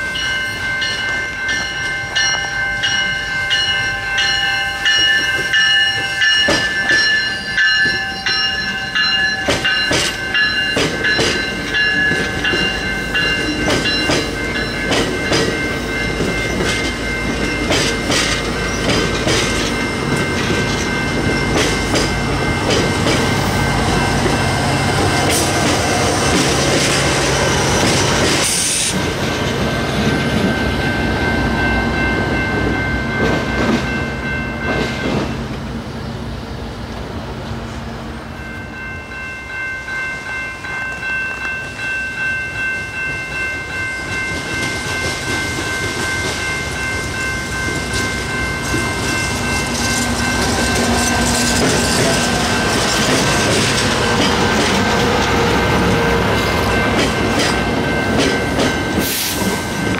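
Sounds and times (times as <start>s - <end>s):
train passing: 0.0s - 59.9s
wheels clicking over rail joints: 9.1s - 30.6s, 44.2s - 59.9s.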